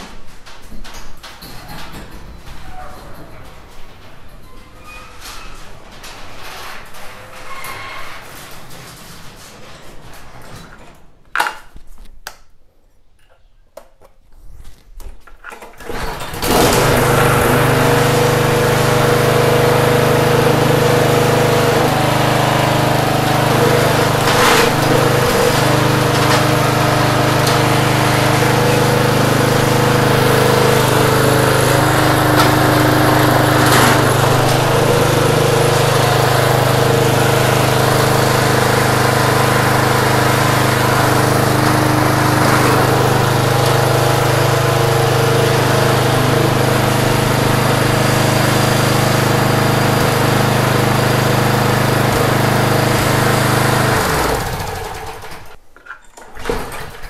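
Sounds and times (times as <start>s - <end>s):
lawn mower engine running: 15.8s - 55.6s.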